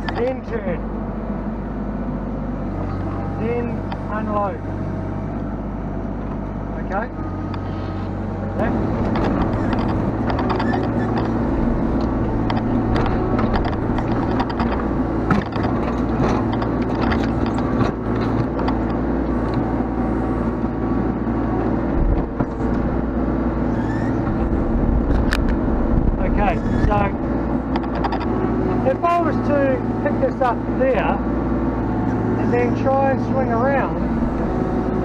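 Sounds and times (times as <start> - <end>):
excavator arm clicks and knocks: 0.0 - 0.3, 3.8 - 4.1, 8.9 - 19.7, 22.0 - 22.8, 24.2 - 26.2, 26.8 - 29.2
diesel engine running: 0.0 - 35.0.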